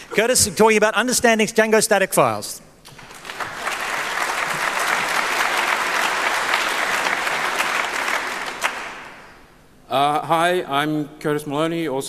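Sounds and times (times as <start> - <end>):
audience applauding: 2.9 - 9.5.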